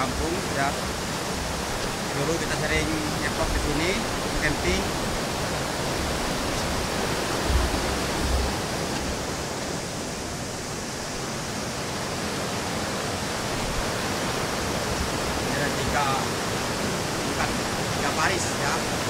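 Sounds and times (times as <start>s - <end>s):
waterfall rushing over rocks: 0.0s - 19.0s.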